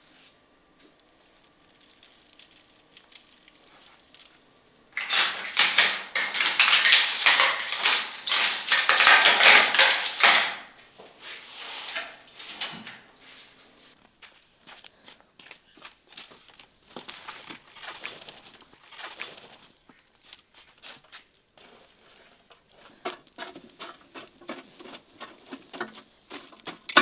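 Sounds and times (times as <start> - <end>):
hands mixing raw meat on tray: 5.0 - 10.6, 14.1 - 27.0.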